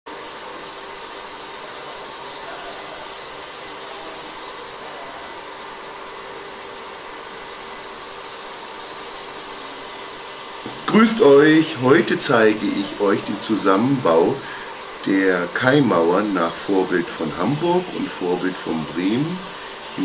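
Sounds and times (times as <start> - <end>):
steady hiss: 0.1 - 20.0
faint hum: 10.6 - 20.0.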